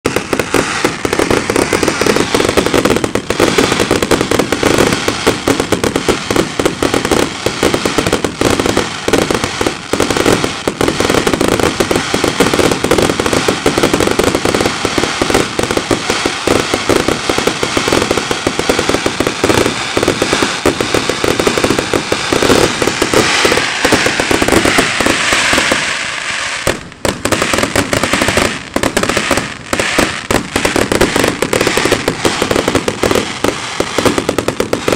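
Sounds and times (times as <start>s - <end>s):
fireworks bangs and crackling: 0.0s - 34.9s
hissing rush: 15.9s - 34.9s.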